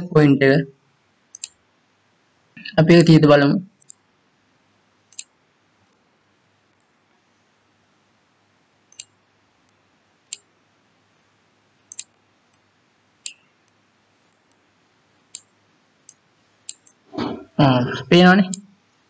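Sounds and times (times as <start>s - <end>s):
faint steady hum: 0.0s - 19.0s
computer mouse clicking: 1.3s - 1.6s, 3.8s - 4.0s, 5.1s - 5.3s, 8.9s - 10.5s, 11.9s - 14.6s, 15.3s - 17.0s.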